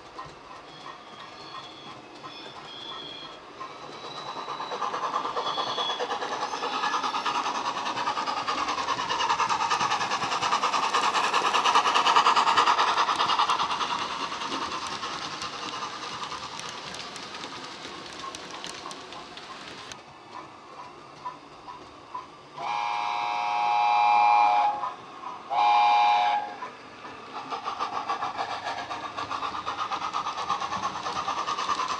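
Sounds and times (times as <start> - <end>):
model steam locomotive sounds: 0.0 - 31.9
model wheels rattling on track: 3.6 - 20.0, 27.4 - 31.9.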